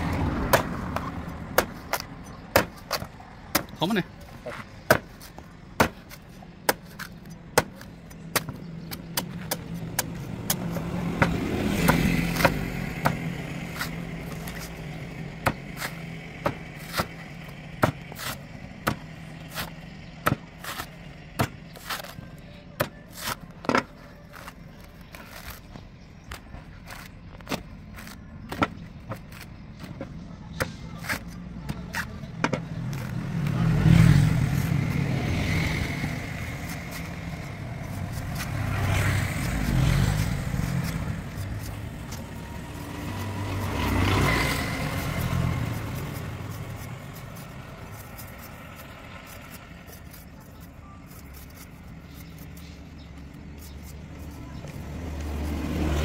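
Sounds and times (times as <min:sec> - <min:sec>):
motor vehicle rumbling past: 0:00.0 - 0:03.5, 0:31.6 - 0:49.8, 0:54.1 - 0:56.0
knife chopping coconut husk: 0:00.0 - 0:25.6, 0:26.9 - 0:56.0
knife scraping: 0:44.1 - 0:55.6.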